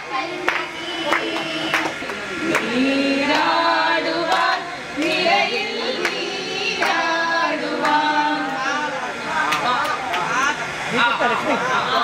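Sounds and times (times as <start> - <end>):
women singing together: 0.0 - 9.8
sharp claps: 0.4 - 3.6, 4.3 - 5.2, 6.0 - 6.2, 6.8 - 7.0, 7.8 - 8.6, 9.5 - 10.3.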